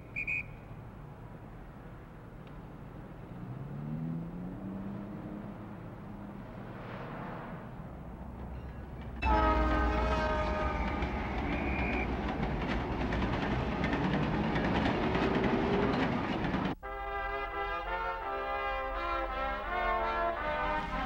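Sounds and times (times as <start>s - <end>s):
train cars rumbling and clattering: 7.9s - 16.8s
train horn blast: 9.2s - 12.2s, 16.8s - 21.0s.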